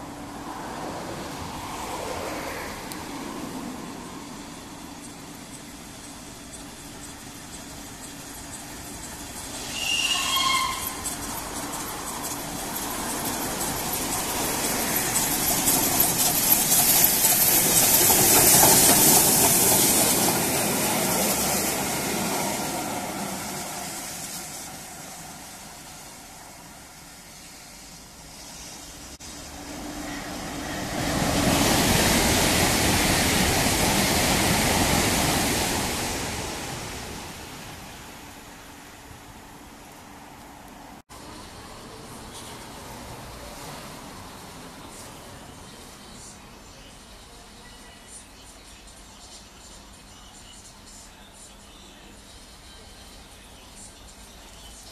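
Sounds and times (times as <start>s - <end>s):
steam train passing: 0.0s - 54.9s
brief high tone: 9.6s - 11.0s
loud rushing noise: 11.0s - 38.4s.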